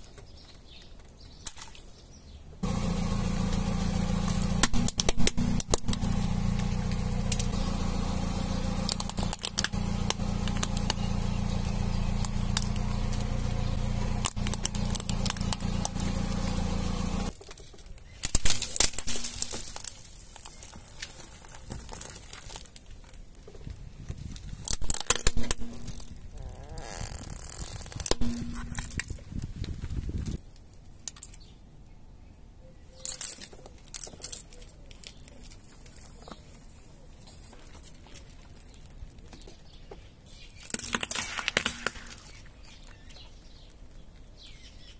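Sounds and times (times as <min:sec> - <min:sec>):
plastic objects cracking and crunching: 0:04.2 - 0:06.1, 0:08.8 - 0:16.2, 0:17.3 - 0:31.4, 0:37.4 - 0:44.3
low rumble: 0:25.4 - 0:30.0.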